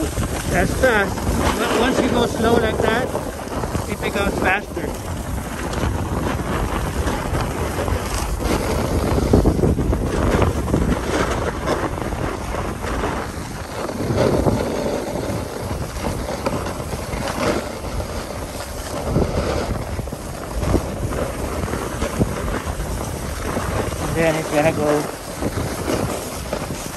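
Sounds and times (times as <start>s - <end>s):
snowboard scraping over snow: 0.0s - 26.9s
wind buffeting microphone: 0.0s - 26.9s.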